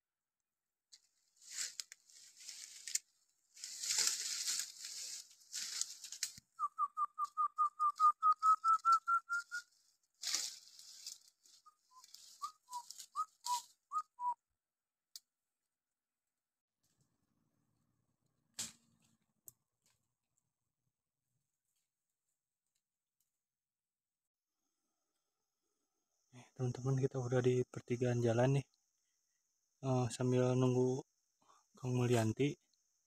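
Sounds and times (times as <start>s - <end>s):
leaves and undergrowth rustling: 0.9s - 6.8s, 7.7s - 13.9s
short whistled notes: 6.6s - 9.7s, 11.6s - 14.4s.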